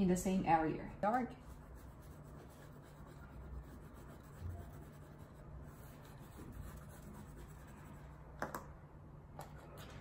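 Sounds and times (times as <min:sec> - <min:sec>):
pastel rubbing on paper: 0:01.4 - 0:08.2.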